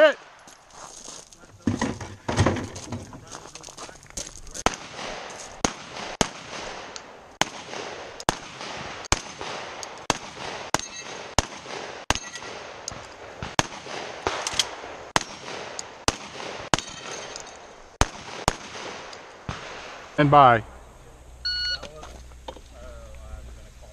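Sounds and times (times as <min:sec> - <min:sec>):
rifle gunshots: 0:04.5 - 0:20.8
steel targets ringing: 0:10.7 - 0:11.3, 0:12.1 - 0:12.6.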